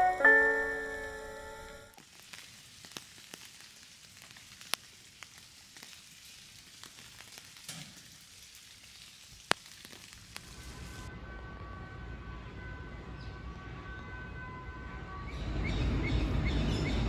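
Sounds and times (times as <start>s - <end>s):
light rain hiss: 0.1s - 11.1s.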